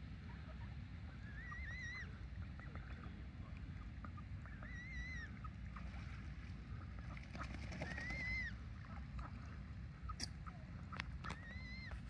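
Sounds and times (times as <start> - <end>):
low background rumble: 0.0 - 12.0
ducks calling: 6.7 - 12.0.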